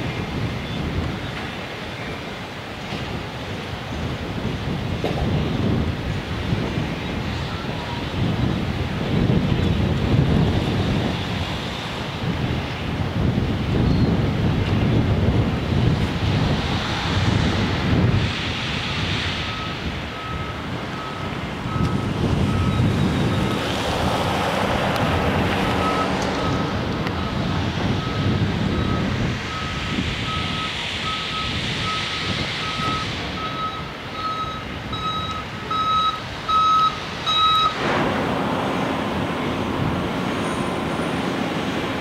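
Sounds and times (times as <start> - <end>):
wind noise: 0.0 - 42.0
vehicle backup alarm beeping: 7.4 - 8.1, 19.4 - 23.6, 25.6 - 41.4
low engine rumble: 19.4 - 42.0.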